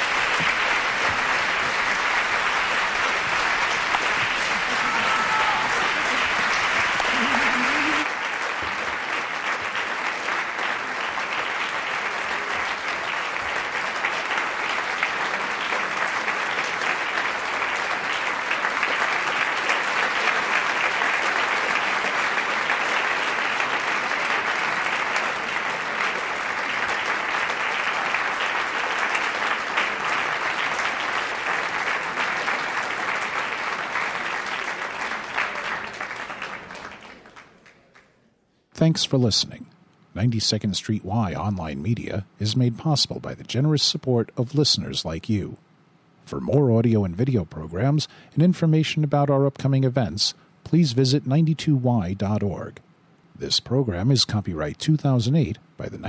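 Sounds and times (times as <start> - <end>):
audience applauding: 0.0 - 38.2.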